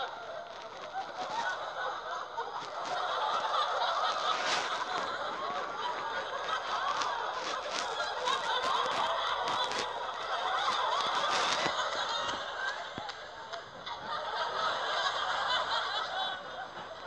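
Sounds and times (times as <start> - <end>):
audience laughing: 0.0 - 17.0.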